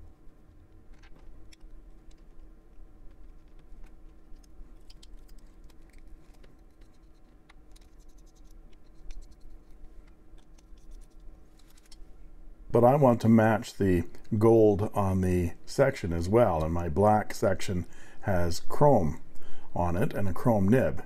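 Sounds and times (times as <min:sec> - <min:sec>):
pen threads scratching: 0:00.0 - 0:12.0
low steady hum: 0:00.0 - 0:21.0
pen parts clicking: 0:03.1 - 0:12.0.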